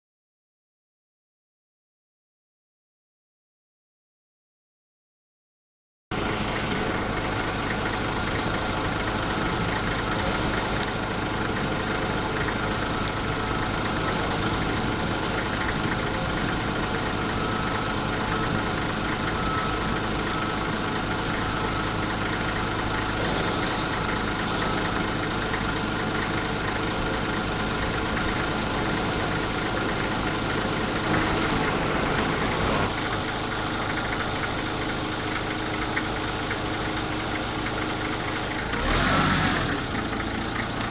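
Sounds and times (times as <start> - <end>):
engine idling: 6.1 - 40.9.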